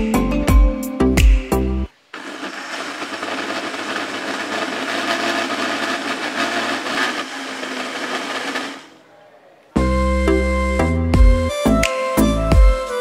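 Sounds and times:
electric blender running: 0:02.2 - 0:09.0.

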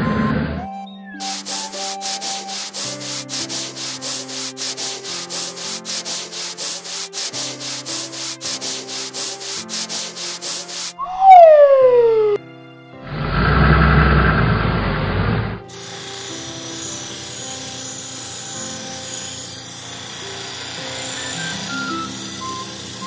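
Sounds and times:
falling whistle tone: 0:00.0 - 0:02.6, 0:11.0 - 0:12.4, 0:21.2 - 0:23.0
cartoon brush scrubbing: 0:01.2 - 0:12.4, 0:15.7 - 0:23.0.

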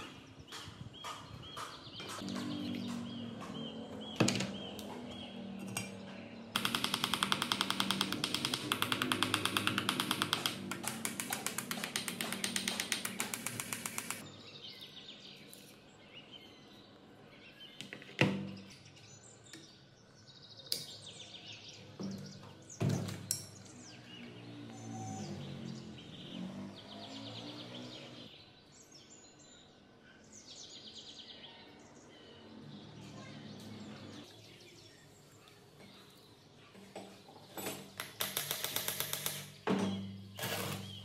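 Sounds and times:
rapid tool clicks: 0:06.6 - 0:14.2, 0:38.0 - 0:39.6
sharp metal knocks: 0:06.6 - 0:14.2.

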